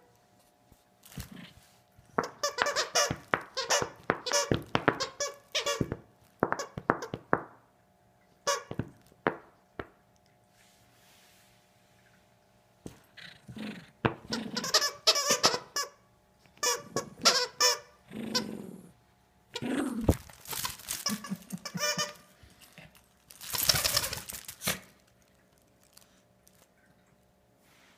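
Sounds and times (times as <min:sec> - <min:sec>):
dog toy squeaker squeaking: 0:02.2 - 0:07.1, 0:08.5 - 0:08.8, 0:14.2 - 0:16.0, 0:16.6 - 0:18.4, 0:20.4 - 0:22.3, 0:23.4 - 0:24.6.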